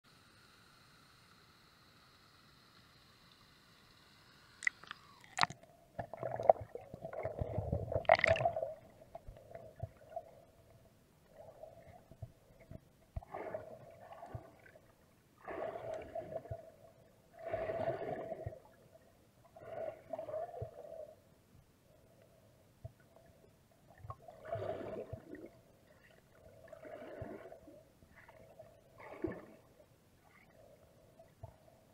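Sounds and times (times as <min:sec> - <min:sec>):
muffled underwater gurgling: 0:04.6 - 0:10.7.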